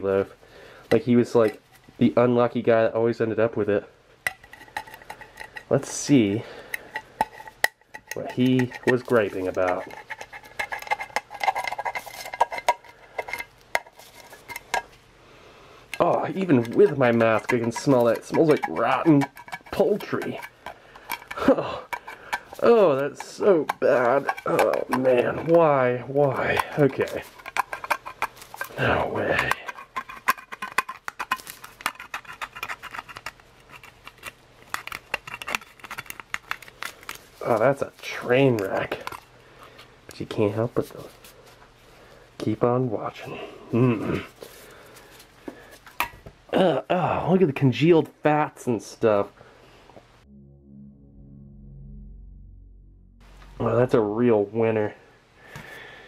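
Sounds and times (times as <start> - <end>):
can opener clicking and scraping: 4.3 - 5.8, 6.7 - 14.9, 16.0 - 25.7, 26.7 - 28.8, 29.5 - 36.7.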